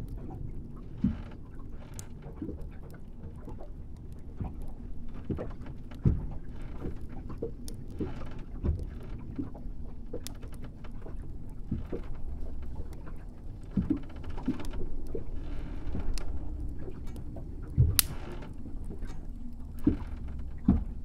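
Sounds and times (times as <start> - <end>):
wooden creaks and knocks: 0.8 - 3.7, 4.3 - 21.0
low rumble: 11.1 - 21.0.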